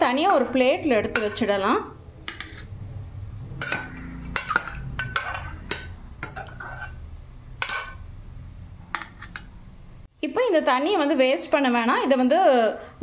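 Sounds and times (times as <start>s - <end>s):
ladle clinking on metal pot: 0.0s - 1.5s, 3.6s - 7.0s, 7.6s - 8.0s.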